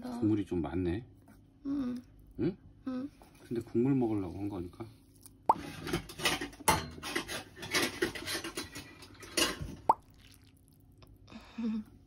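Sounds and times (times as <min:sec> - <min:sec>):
utensils working noodles: 0:05.6 - 0:09.6
wet slurping and eating: 0:09.9 - 0:11.2.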